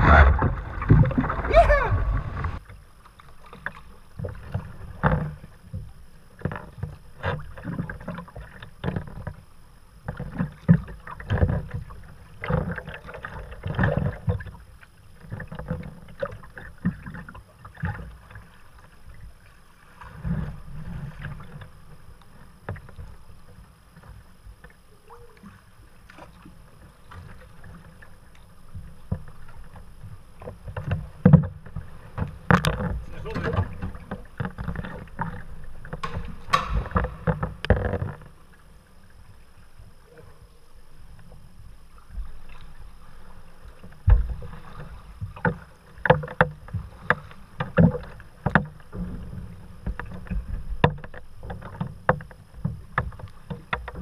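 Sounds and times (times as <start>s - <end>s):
low rumble: 0.0s - 2.6s
paddle splashing in water: 0.0s - 5.5s, 24.1s - 39.7s, 41.9s - 54.0s
water slapping hull: 0.0s - 54.0s.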